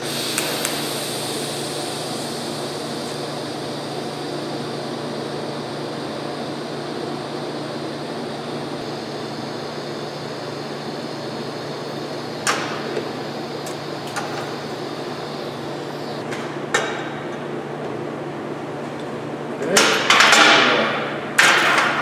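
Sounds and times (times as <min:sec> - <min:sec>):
welding arc hissing: 0:00.0 - 0:16.2
machine hum: 0:00.0 - 0:20.1.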